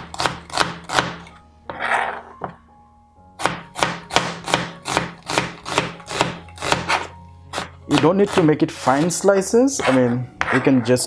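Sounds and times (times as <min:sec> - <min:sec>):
knife chopping on cutting board: 0:00.0 - 0:01.2, 0:03.4 - 0:09.2, 0:09.8 - 0:10.8.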